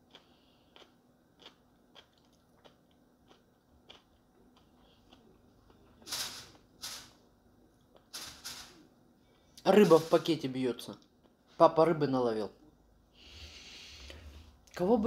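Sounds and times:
breathy puffs of air: 13.1s - 14.6s.

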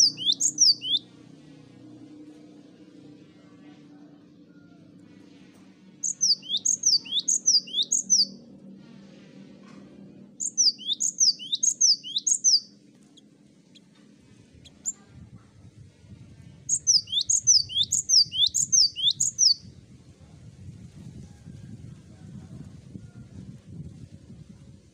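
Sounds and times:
bird singing whistled notes: 0.0s - 1.1s, 6.0s - 8.4s, 10.4s - 12.7s, 16.7s - 19.6s.

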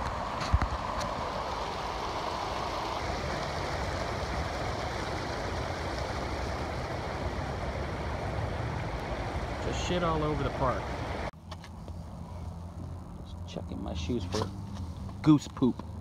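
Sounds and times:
water rushing over concrete weirs: 0.0s - 11.3s.

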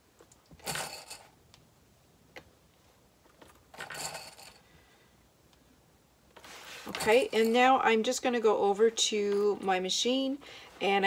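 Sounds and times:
fabric rustling: 6.3s - 7.8s.

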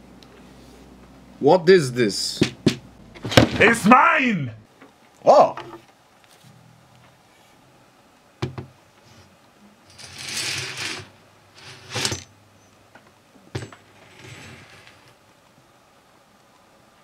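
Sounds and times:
game pieces rattling: 9.9s - 12.2s.

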